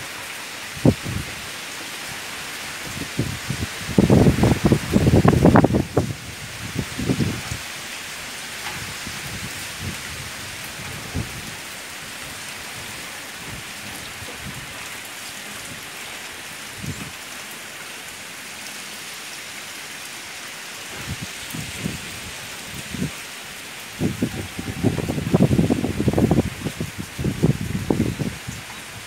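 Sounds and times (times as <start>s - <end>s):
heavy rain hissing: 0.0s - 29.0s
wind gusts rumbling on microphone: 0.6s - 15.0s, 16.7s - 17.2s, 20.9s - 29.0s.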